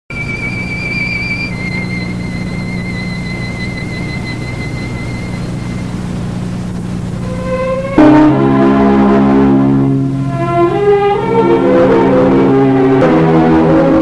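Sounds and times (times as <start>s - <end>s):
high wavering whistle-like tone: 0.1s - 6.1s
steady low hum: 0.1s - 14.0s.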